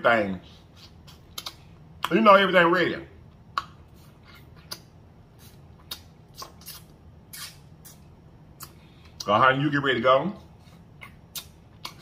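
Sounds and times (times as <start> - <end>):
wet lip smacks and chewing: 0.8 - 2.2, 3.3 - 9.3, 10.8 - 12.0.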